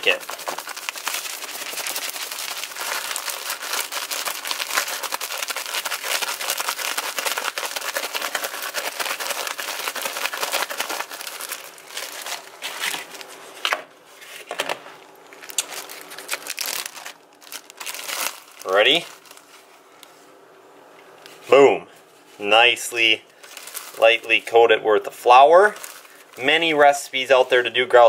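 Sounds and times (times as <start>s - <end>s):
bag rustles: 0.0s - 13.6s, 15.4s - 19.8s, 23.4s - 24.4s, 25.6s - 26.5s
plastic bag crinkling: 0.0s - 13.7s, 15.2s - 19.8s, 23.3s - 24.6s, 25.2s - 28.0s.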